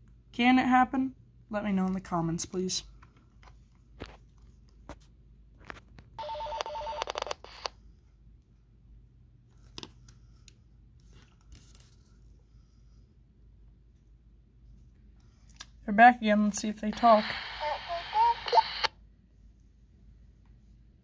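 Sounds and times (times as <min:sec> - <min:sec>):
walkie-talkie static with electronic tones: 0:06.2 - 0:07.7, 0:16.9 - 0:18.9.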